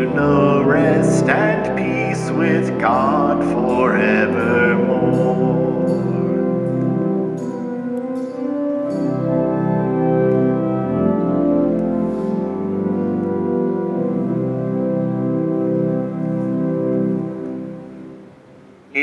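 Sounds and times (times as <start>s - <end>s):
organ playing sustained chords: 0.0s - 19.0s.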